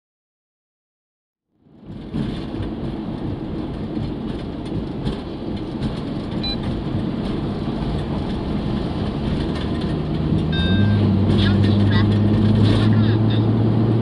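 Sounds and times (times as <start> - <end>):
car road noise rumble: 1.5 - 14.0
faint short beep: 10.5 - 11.1.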